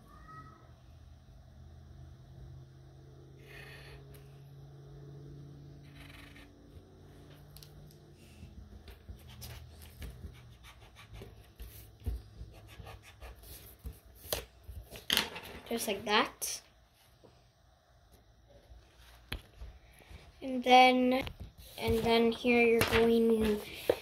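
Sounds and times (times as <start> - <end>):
faint low hum: 0.0 - 24.0
pencil scratching on paper: 9.0 - 14.4.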